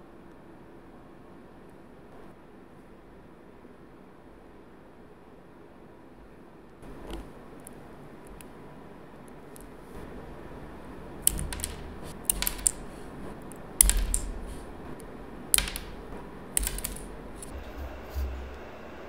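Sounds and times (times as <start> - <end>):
plastic nail tips clicking and snapping: 11.2 - 17.5.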